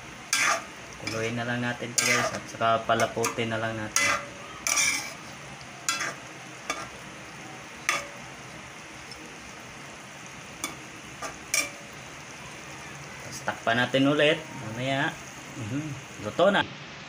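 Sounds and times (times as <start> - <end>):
sauce simmering and sizzling in a wok: 0.0 - 17.0
metal spoon scraping a wok: 0.2 - 7.0, 7.8 - 8.2, 10.6 - 12.0.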